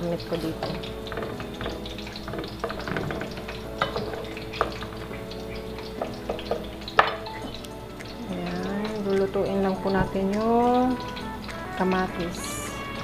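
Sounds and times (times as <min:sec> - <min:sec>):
sauce sizzling in pot: 0:00.0 - 0:13.0
wooden spoon stirring: 0:00.0 - 0:13.0
spoon knocking against pot: 0:00.6 - 0:07.6.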